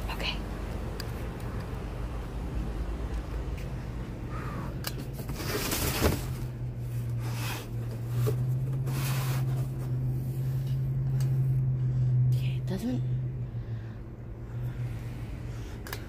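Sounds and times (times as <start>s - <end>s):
steady low hum: 0.0s - 16.0s
cardboard and plastic bags rustling: 5.0s - 10.3s.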